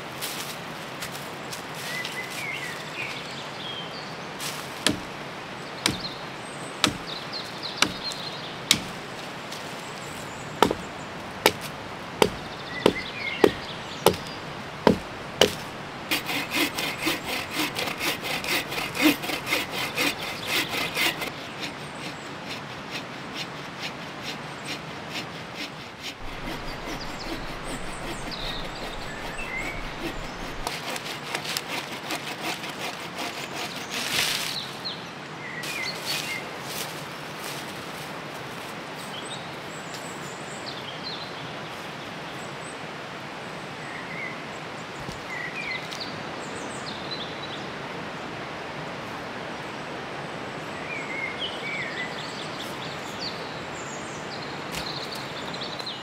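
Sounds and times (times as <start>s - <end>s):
hand saw cutting a branch: 4.4s - 5.2s, 5.8s - 34.7s
sharp wooden knocks: 4.8s - 5.2s, 5.9s - 6.2s, 6.8s - 7.2s, 7.8s - 9.0s, 10.6s - 21.3s, 25.6s - 31.1s.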